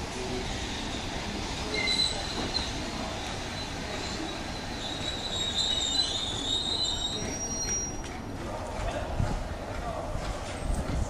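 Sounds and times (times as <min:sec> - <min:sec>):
train wheels squealing: 0:01.6 - 0:08.2.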